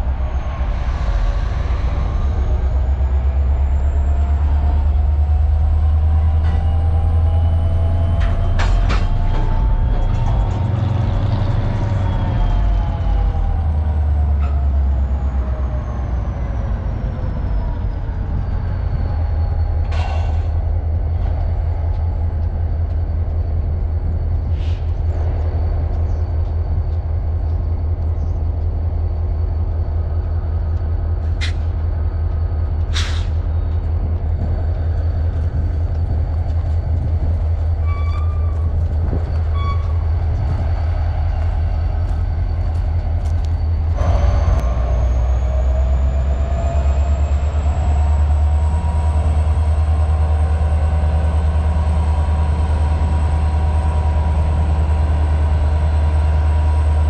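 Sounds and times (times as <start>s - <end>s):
diesel locomotive engine rumbling: 0.0s - 57.0s
air brake hisses: 32.9s - 33.4s.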